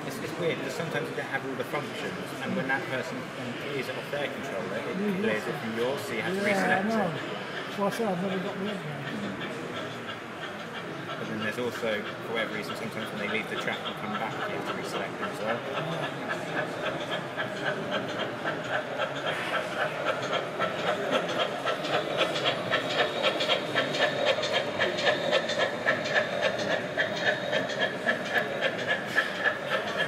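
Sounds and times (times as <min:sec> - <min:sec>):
model steam locomotive chuffing: 0:00.0 - 0:30.0
wheels clicking on rail: 0:08.7 - 0:30.0.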